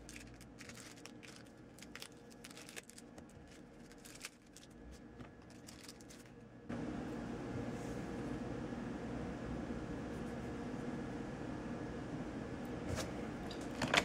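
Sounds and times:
packaging rustling: 0.0 - 6.4.

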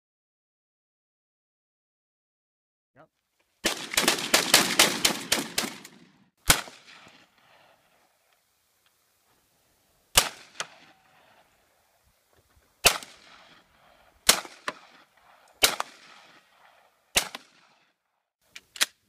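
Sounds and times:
gunshots: 3.6 - 7.9, 10.1 - 11.5, 12.8 - 18.0
gunshot echo crack: 3.6 - 8.0, 10.1 - 11.5, 12.8 - 17.9.

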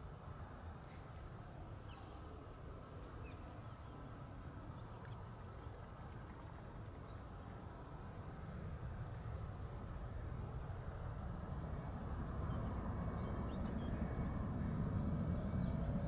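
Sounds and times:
steady low rumble: 5.0 - 16.0.

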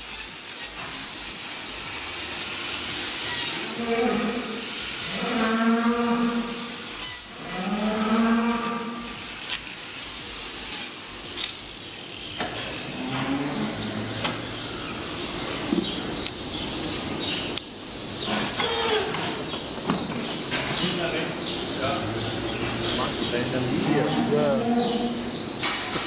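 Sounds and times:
cow mooing: 3.6 - 6.7, 7.3 - 9.2, 23.8 - 25.2.

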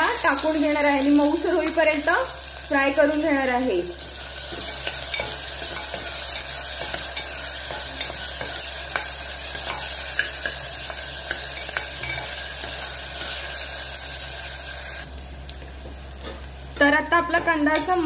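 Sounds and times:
onions sizzling in hot oil: 0.0 - 18.0.

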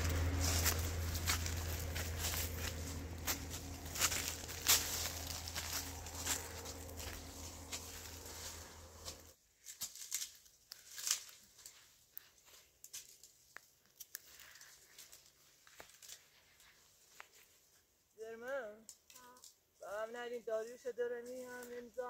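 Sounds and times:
low hum: 0.0 - 9.4
rustling: 0.0 - 17.9.

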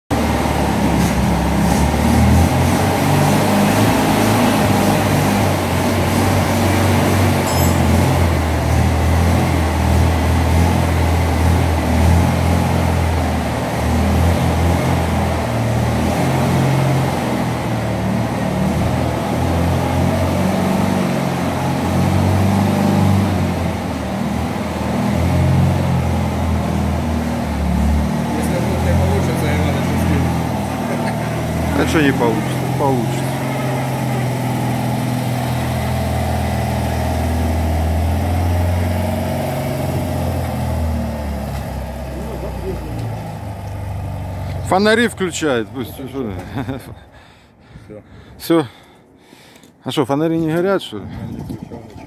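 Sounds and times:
car engine running: 0.1 - 47.4.

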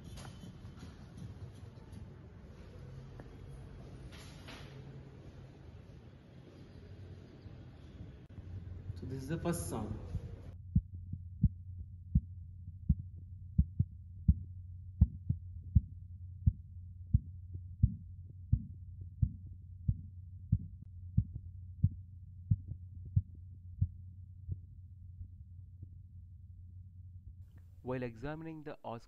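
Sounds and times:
steady low hum: 4.7 - 29.0
stethoscope heartbeat taps: 10.7 - 25.3.

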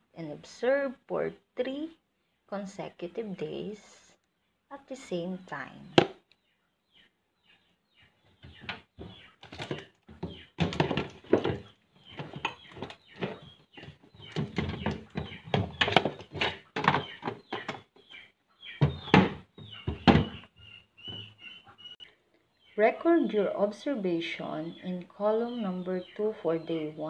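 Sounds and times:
plastic knocks and scrapes: 8.4 - 18.1, 18.8 - 21.3.

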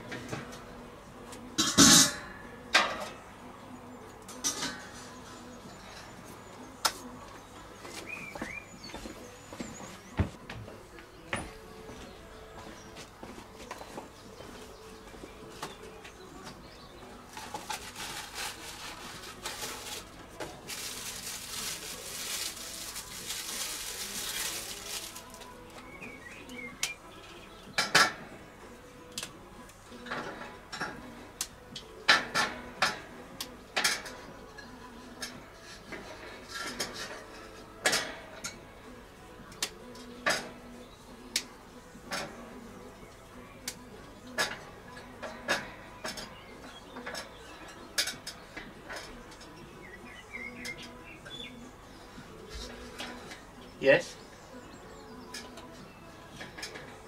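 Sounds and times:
packaging crinkling and rustling: 17.4 - 25.5.

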